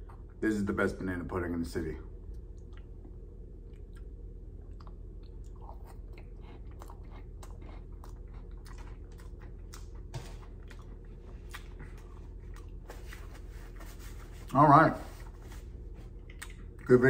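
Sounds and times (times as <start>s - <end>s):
close chewing with mouth clicks: 2.6s - 13.3s, 16.2s - 16.9s.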